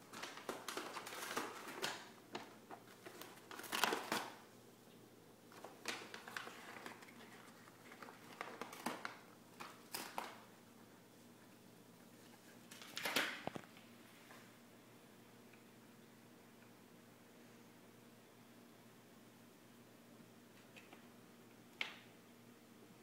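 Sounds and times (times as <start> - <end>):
paper bag crinkling: 0.0 - 4.4, 5.5 - 10.5.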